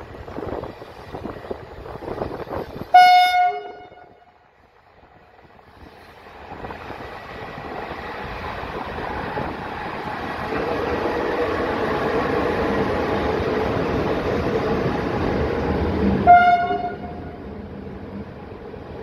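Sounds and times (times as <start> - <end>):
locomotive horn blast: 2.9 - 4.3, 16.2 - 17.4.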